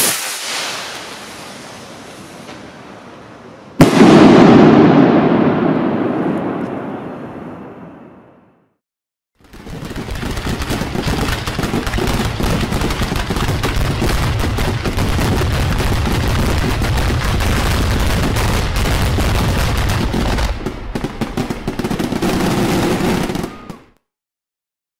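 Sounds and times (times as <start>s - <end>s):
fireworks barrage: 0.0s - 8.2s, 9.4s - 24.0s.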